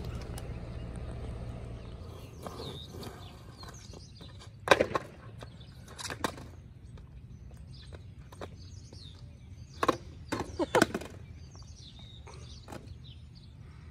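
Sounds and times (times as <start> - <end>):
birds chirping faintly: 0.0 - 13.9
skateboard landing on asphalt: 4.6 - 5.4.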